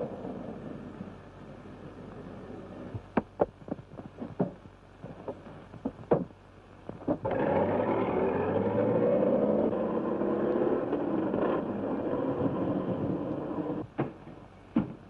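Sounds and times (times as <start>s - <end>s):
car engine running hard: 7.2s - 13.8s.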